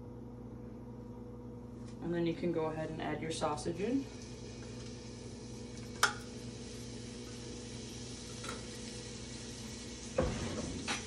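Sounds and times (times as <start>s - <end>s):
sausage sizzling in a pan: 4.0s - 11.0s.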